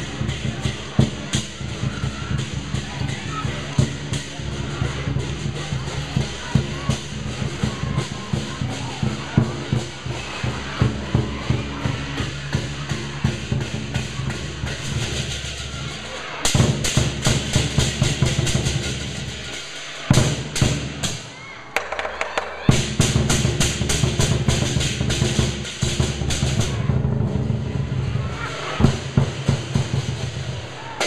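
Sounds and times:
crashing hand cymbals: 0:00.0 - 0:21.3
large drum beaten fast: 0:00.0 - 0:31.0.

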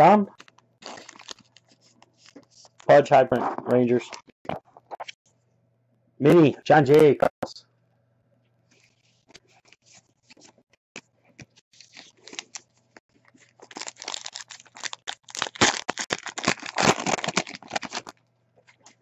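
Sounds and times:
card wrappers crinkling and rustling: 0:00.3 - 0:04.2, 0:08.8 - 0:10.6, 0:11.4 - 0:19.0.

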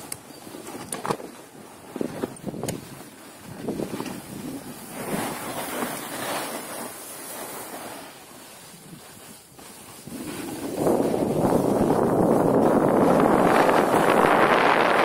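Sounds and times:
skis scraping over snow: 0:00.2 - 0:15.0
wind rushing over microphone: 0:02.0 - 0:05.8, 0:10.0 - 0:15.0.

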